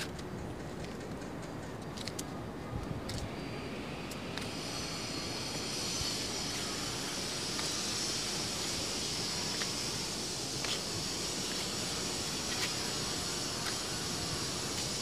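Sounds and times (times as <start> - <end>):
higher steady hiss: 3.4 - 15.0.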